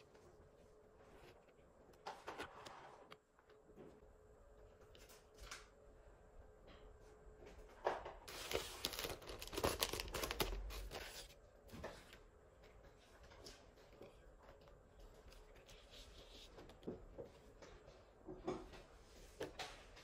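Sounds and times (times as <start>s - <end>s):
plastic sheets rustling: 8.3s - 12.1s.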